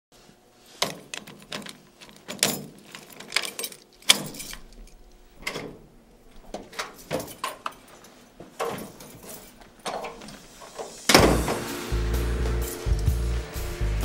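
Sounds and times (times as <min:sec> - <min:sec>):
keys jangling: 0:00.8 - 0:05.7, 0:06.8 - 0:10.4
door lock and handle clicking: 0:00.8 - 0:05.8.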